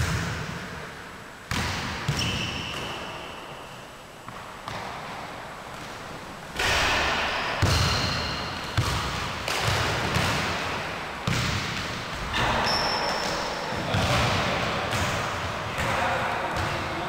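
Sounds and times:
sneakers squeaking on floor: 0:01.5 - 0:06.0, 0:07.3 - 0:10.6, 0:11.2 - 0:16.0
basketball bouncing on wooden floor: 0:07.6 - 0:10.6, 0:11.2 - 0:14.3.

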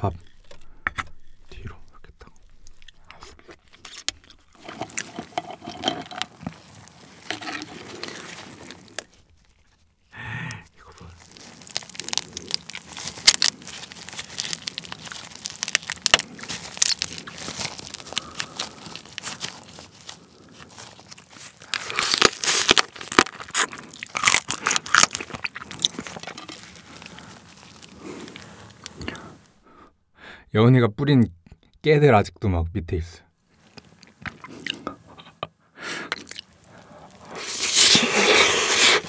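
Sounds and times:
crab shell cracking and tearing: 0:02.4 - 0:09.8, 0:10.5 - 0:29.5, 0:36.1 - 0:39.0.

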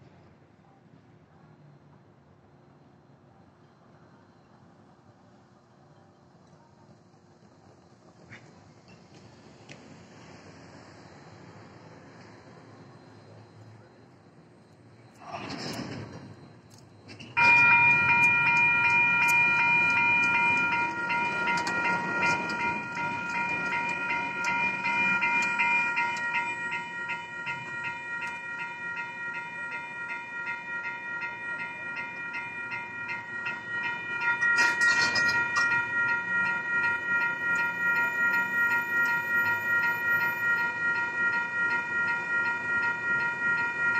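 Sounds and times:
railroad crossing bell dinging: 0:11.0 - 0:43.9.

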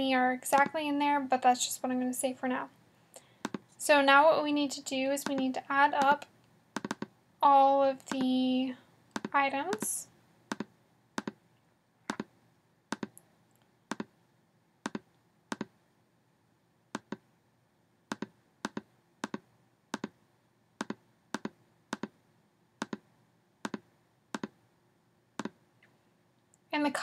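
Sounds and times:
computer mouse clicking: 0:06.8 - 0:07.1, 0:09.1 - 0:09.9, 0:10.5 - 0:11.4, 0:12.1 - 0:12.3, 0:13.9 - 0:14.1, 0:14.8 - 0:15.7, 0:17.0 - 0:17.2, 0:18.1 - 0:19.4, 0:20.8 - 0:22.1, 0:22.8 - 0:23.0, 0:23.6 - 0:24.6.

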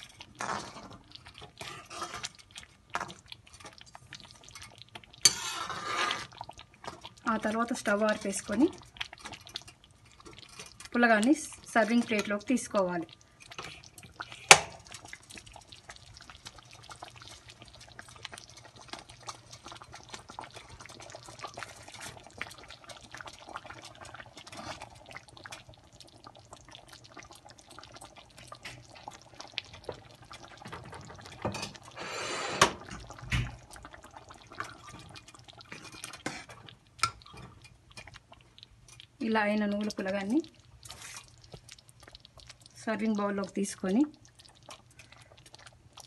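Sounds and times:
thick pudding bubbling and popping: 0:00.0 - 0:46.0
spoon scraping pan: 0:00.4 - 0:02.4, 0:04.4 - 0:06.4, 0:31.4 - 0:32.9, 0:35.7 - 0:38.2.

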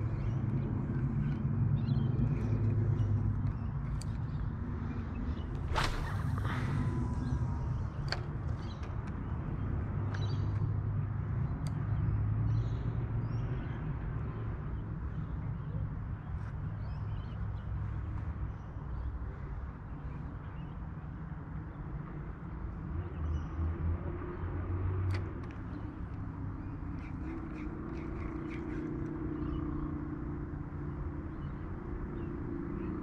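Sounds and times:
steady low rumble: 0:04.9 - 0:10.0
faint bird calls: 0:26.6 - 0:30.0.

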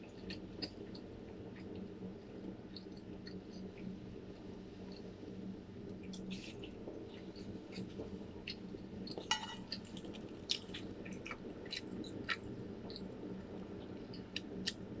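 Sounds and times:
chewing with mouth closed: 0:00.0 - 0:01.9, 0:06.0 - 0:13.2
low room hum: 0:00.0 - 0:15.0.

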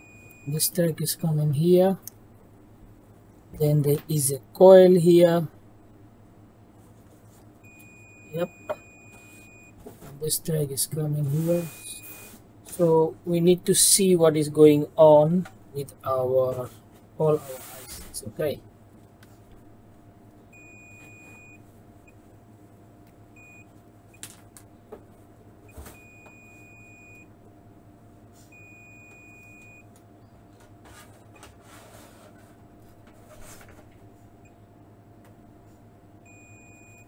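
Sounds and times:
steady low hum: 0:00.0 - 0:37.0
multimeter beeping: 0:11.4 - 0:12.4, 0:28.6 - 0:29.8, 0:36.2 - 0:37.0.

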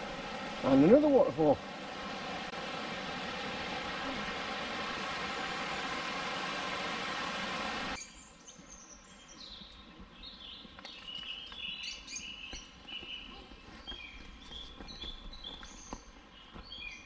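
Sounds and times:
small birds chirping: 0:08.0 - 0:17.0.

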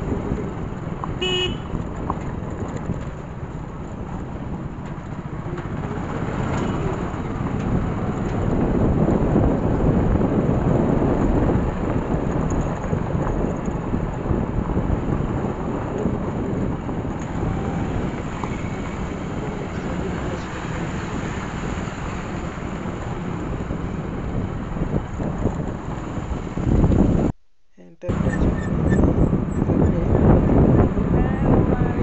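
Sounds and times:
wind buffeting microphone: 0:00.0 - 0:27.4, 0:28.0 - 0:32.0
low rumble of road noise: 0:00.0 - 0:32.0.

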